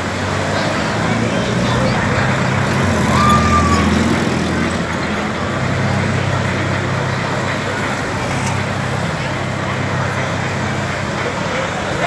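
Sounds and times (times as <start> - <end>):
cars passing: 0.0 - 12.0
truck diesel engine: 0.0 - 12.0.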